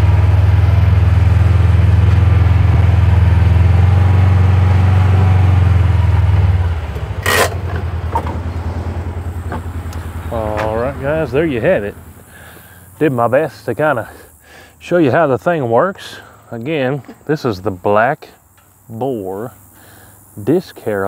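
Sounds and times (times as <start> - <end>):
utility vehicle engine running: 0.0 - 15.3.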